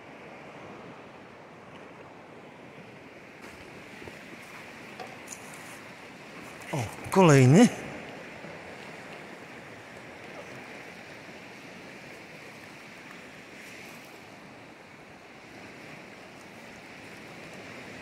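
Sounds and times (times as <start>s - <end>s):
sea surf breaking: 3.4s - 10.2s.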